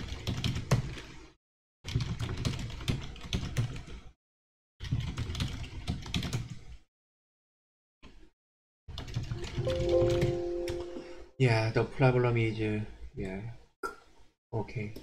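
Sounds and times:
typing on computer keyboard: 0:00.0 - 0:01.0, 0:01.9 - 0:04.0, 0:04.8 - 0:06.5, 0:08.9 - 0:10.8.

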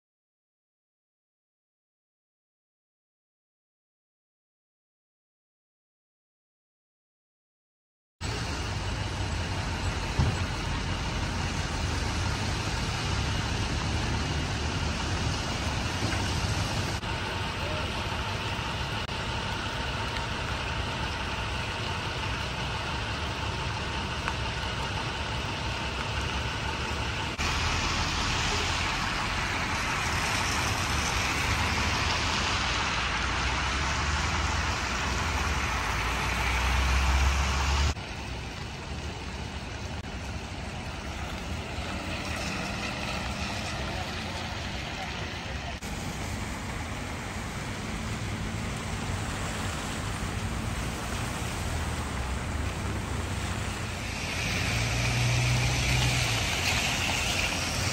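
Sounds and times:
road traffic engines: 0:08.2 - 0:57.9.

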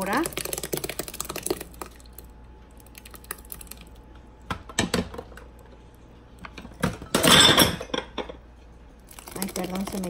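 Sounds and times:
thick liquid pouring into a bowl: 0:00.0 - 0:04.1, 0:09.0 - 0:10.0.

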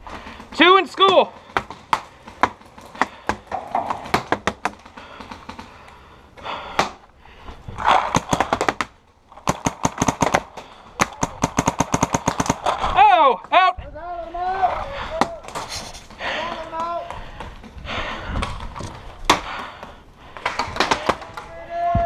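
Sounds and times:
paintball markers firing: 0:07.8 - 0:12.9.

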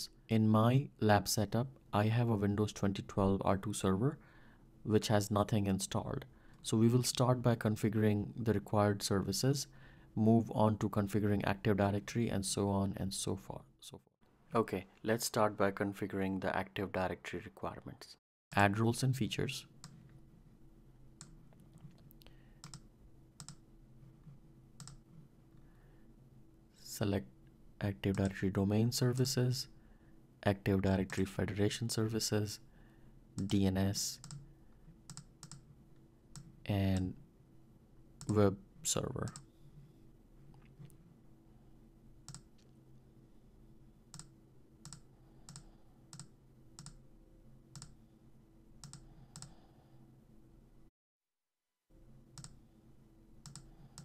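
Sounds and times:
low steady hum: 0:00.0 - 0:50.9, 0:51.9 - 0:54.0
computer mouse clicking: 0:22.6 - 0:23.6, 0:24.8 - 0:25.0, 0:34.2 - 0:34.5, 0:35.1 - 0:35.6, 0:42.3 - 0:42.7, 0:44.1 - 0:47.0, 0:47.8 - 0:48.0, 0:48.8 - 0:49.6, 0:52.4 - 0:52.6, 0:53.4 - 0:54.0.

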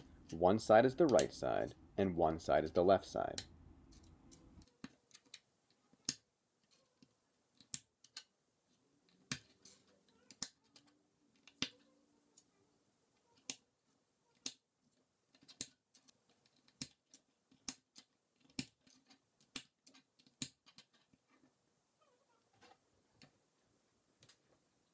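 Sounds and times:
plastic pieces clicking together: 0:03.4 - 0:08.3, 0:09.0 - 0:12.5, 0:14.3 - 0:21.2.

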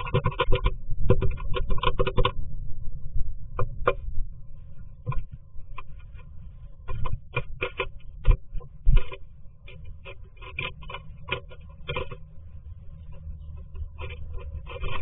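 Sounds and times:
bird scratching and tapping on wood: 0:00.0 - 0:02.4, 0:05.0 - 0:12.3, 0:13.0 - 0:15.0.

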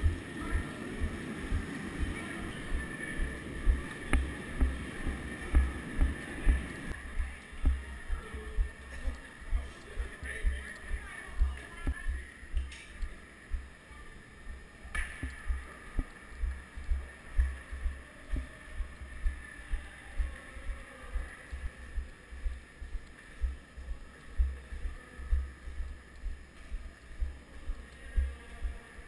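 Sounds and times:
footsteps dull thuds: 0:00.0 - 0:13.7, 0:14.5 - 0:20.4.

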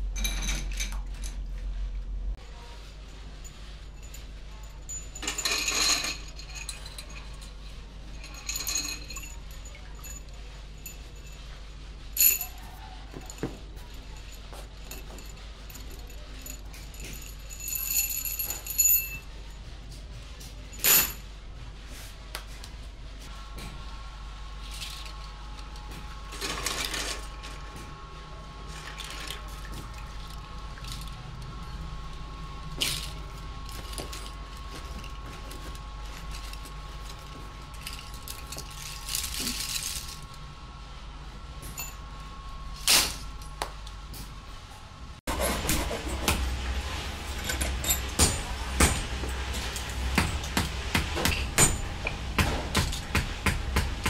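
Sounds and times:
low machine hum: 0:00.0 - 0:54.0
metal lock parts clinking: 0:47.3 - 0:50.5.

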